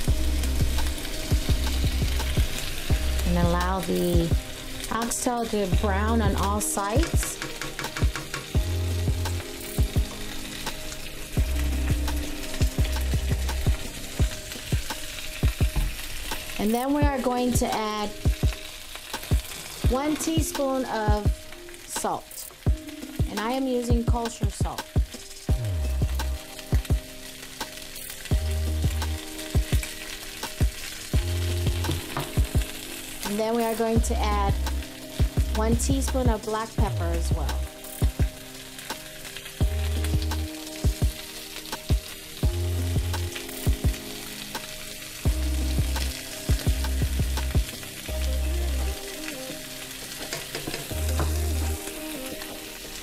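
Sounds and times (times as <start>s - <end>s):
background music with drums and bass: 0.0s - 4.5s, 5.6s - 53.0s
meat sizzling in hot oil: 0.0s - 53.0s.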